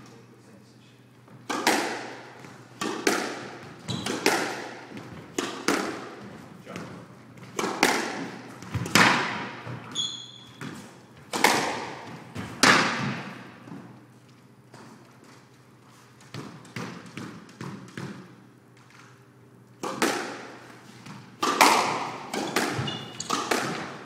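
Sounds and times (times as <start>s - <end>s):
squash ball hits echoing: 1.4s - 10.0s, 10.6s - 14.0s, 16.3s - 18.4s, 19.8s - 24.0s
shoe squeak on wooden floor: 3.8s - 4.2s, 9.9s - 10.8s, 22.8s - 23.4s.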